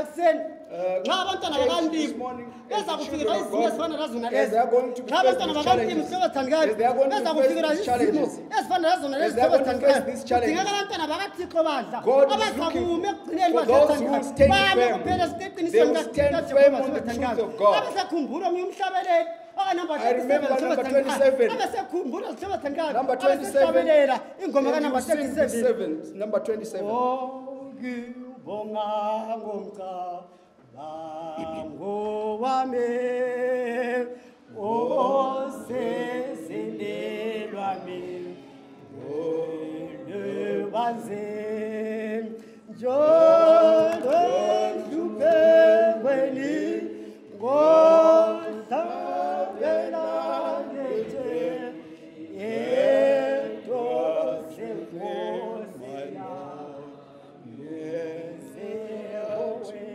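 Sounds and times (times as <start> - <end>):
group singing a slow hymn: 12.1 - 18.2, 26.8 - 59.9.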